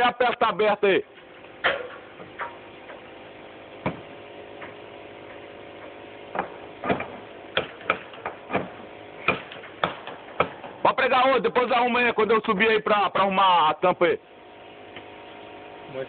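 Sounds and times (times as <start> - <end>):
nail gun firing: 6.3 - 10.7.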